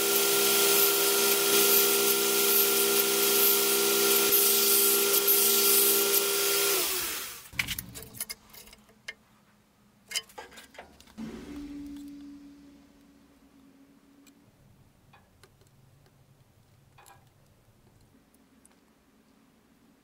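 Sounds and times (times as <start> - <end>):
power tool grinding hiss: 0.0 - 7.5
sharp clicks and knocks: 15.1 - 18.8.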